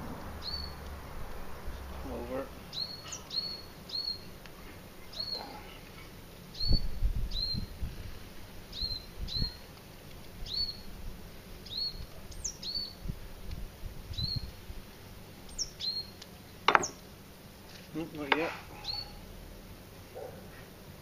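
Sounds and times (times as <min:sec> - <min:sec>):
songbird chirping: 0:00.1 - 0:01.2, 0:02.1 - 0:04.4, 0:05.0 - 0:05.8, 0:11.6 - 0:13.0, 0:15.4 - 0:17.0.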